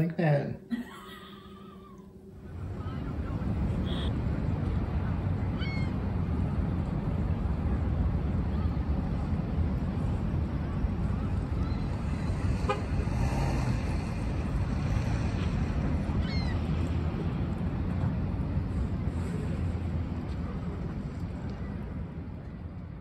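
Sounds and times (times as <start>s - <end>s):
traffic rumble: 0.0s - 23.0s
wind: 0.0s - 23.0s
car horn toot: 12.6s - 12.9s.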